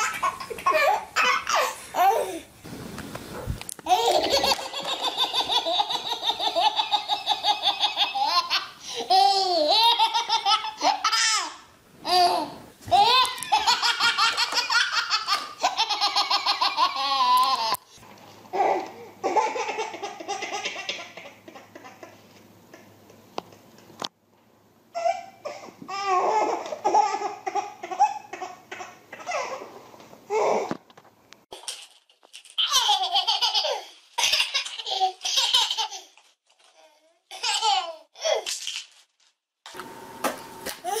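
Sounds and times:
baby laughing: 0.0s - 2.4s, 3.9s - 17.9s, 18.5s - 22.9s, 25.0s - 29.7s, 32.6s - 36.2s, 37.3s - 38.5s.

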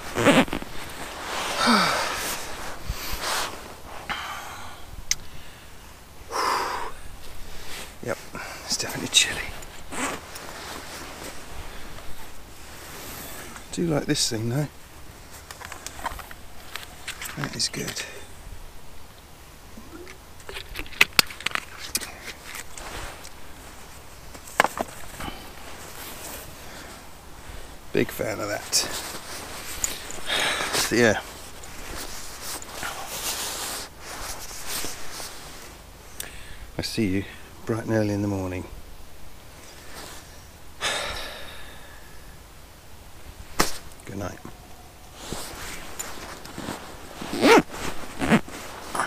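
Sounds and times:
fabric swishing: 0.0s - 3.8s
bedding and fabric rustling: 0.0s - 4.1s, 7.2s - 18.1s, 22.2s - 36.2s, 43.1s - 49.0s
person breathing heavily: 1.3s - 8.7s, 30.0s - 30.8s, 36.2s - 36.7s, 40.8s - 42.4s.

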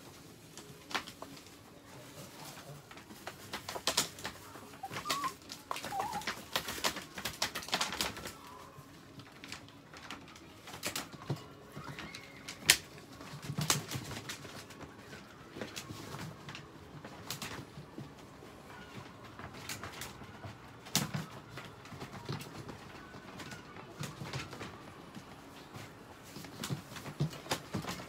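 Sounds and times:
dogs whining: 4.7s - 6.4s.

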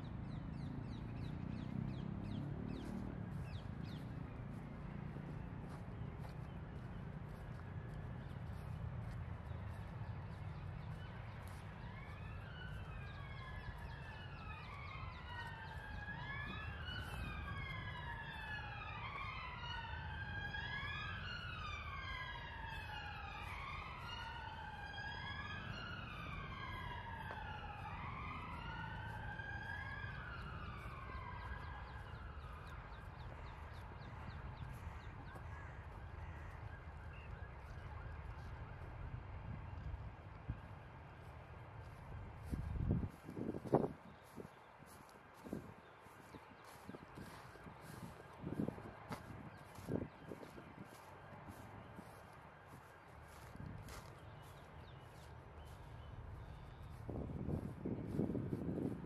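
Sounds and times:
emergency siren wailing: 0.0s - 59.0s.

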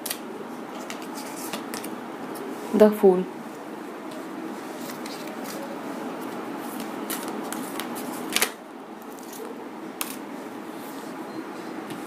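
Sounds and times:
cards being shuffled: 4.8s - 10.2s.

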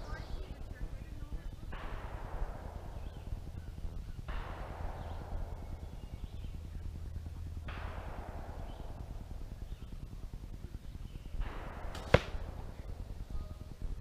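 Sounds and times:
arrow striking foam target: 11.7s - 12.7s
arrow whooshing: 11.9s - 12.6s.

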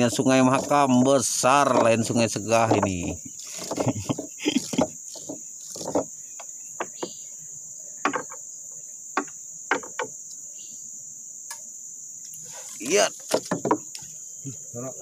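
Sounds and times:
insects droning: 0.0s - 15.0s
fishing gear knocking in wooden boat: 8.0s - 8.4s, 9.2s - 10.1s, 13.3s - 13.8s.

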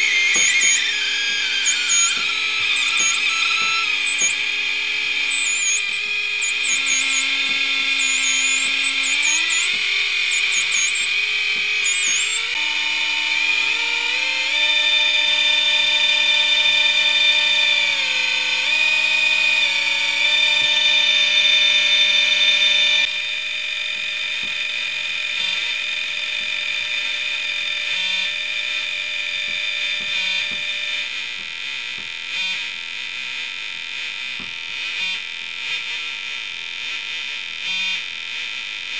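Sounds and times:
warbling high whistle: 0.0s - 23.1s
square-wave synth tones droning: 0.0s - 31.0s.

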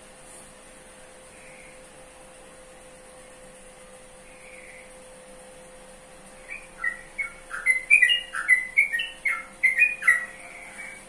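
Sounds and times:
bird chirping song: 4.2s - 5.0s, 6.4s - 11.0s.

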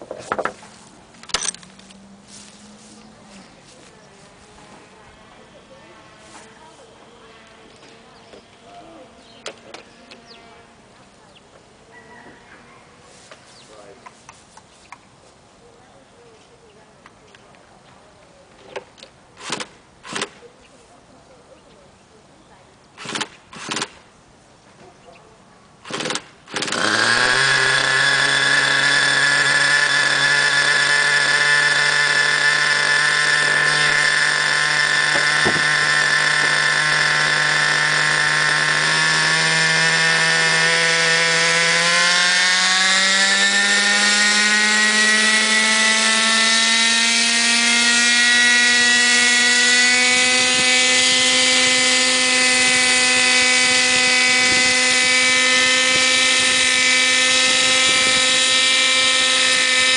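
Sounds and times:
model helicopter engine whine: 1.2s - 11.0s, 25.9s - 59.9s.

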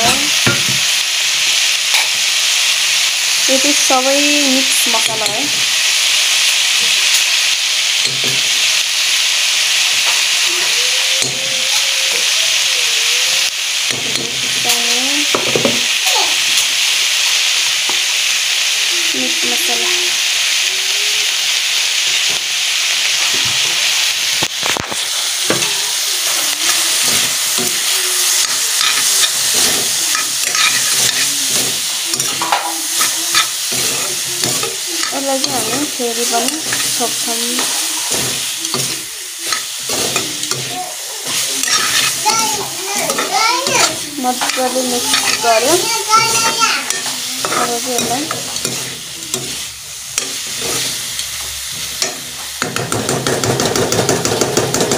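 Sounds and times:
food sizzling in a pot: 0.0s - 54.9s
metal spoon scraping a pot: 28.4s - 40.7s, 41.3s - 42.2s, 43.0s - 52.2s.

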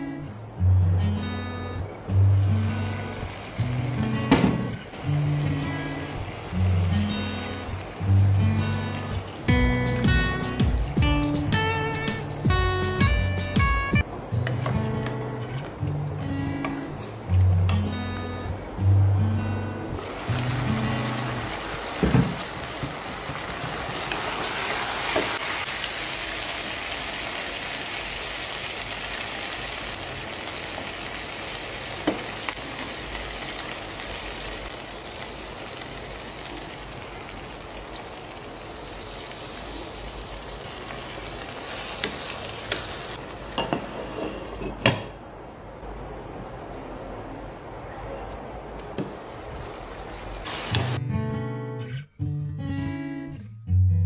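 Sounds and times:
curry sizzling in a pot: 20.0s - 44.3s.

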